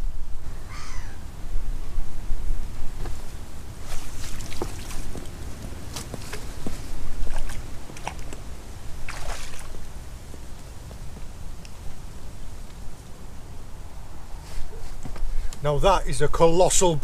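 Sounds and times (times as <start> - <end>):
wind buffeting microphone: 0.0 - 17.0
water splashing: 3.9 - 6.5, 7.2 - 9.8.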